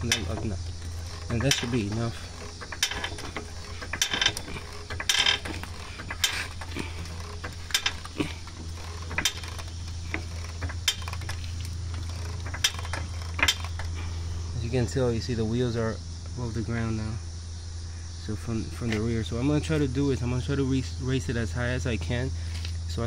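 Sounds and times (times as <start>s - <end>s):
floor jack clicking and clanking: 0.0s - 14.1s
steady low hum: 0.0s - 23.0s.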